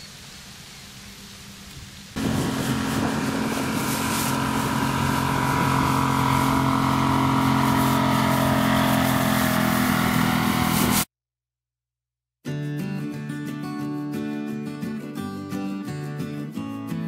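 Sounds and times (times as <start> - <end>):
outboard motor running: 2.2 - 11.0.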